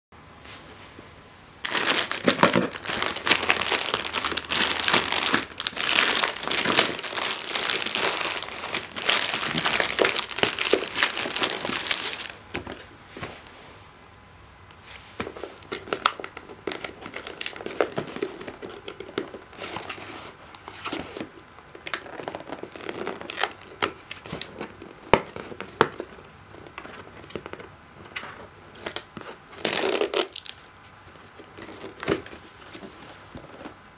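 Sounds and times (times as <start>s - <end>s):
plastic mailer bag crinkling and tearing: 1.6s - 12.9s, 15.3s - 20.0s, 20.8s - 30.6s
hands handling cardboard box: 1.7s - 13.6s, 14.9s - 33.9s.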